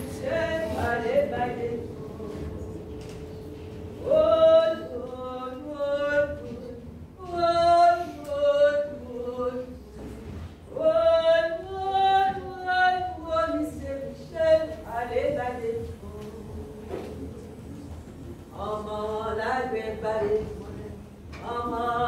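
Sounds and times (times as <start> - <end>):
woman singing unaccompanied: 0.0 - 3.2, 4.0 - 17.7, 18.4 - 22.0.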